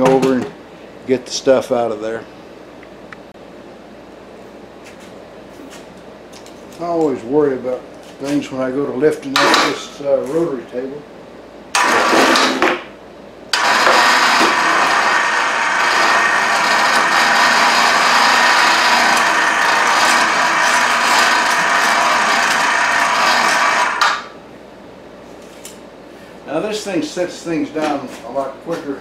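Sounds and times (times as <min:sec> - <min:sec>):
electric hoist motor drone: 0:11.7 - 0:12.8, 0:13.5 - 0:24.4.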